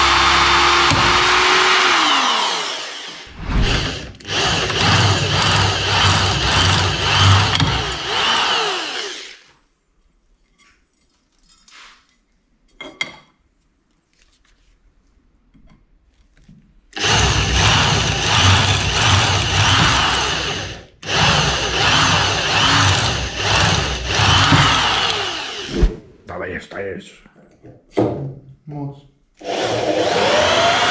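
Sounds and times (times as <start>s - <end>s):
electric drill boring metal: 0.0s - 9.5s, 17.0s - 25.7s, 29.4s - 30.9s.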